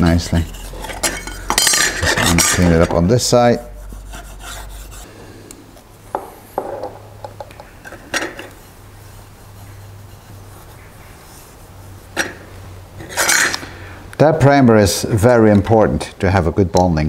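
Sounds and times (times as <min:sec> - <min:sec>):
soft rubbing: 0:00.0 - 0:05.2, 0:07.7 - 0:13.3
steady low hum: 0:00.0 - 0:15.5.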